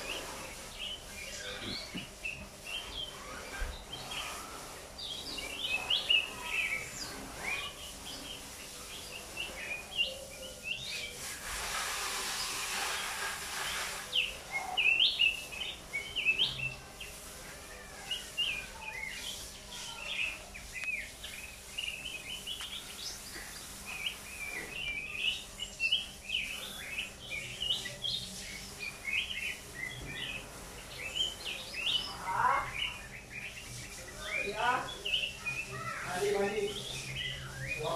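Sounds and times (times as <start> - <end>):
hissing noise: 0.0 - 34.2
songbird chirping and trilling: 0.0 - 37.9.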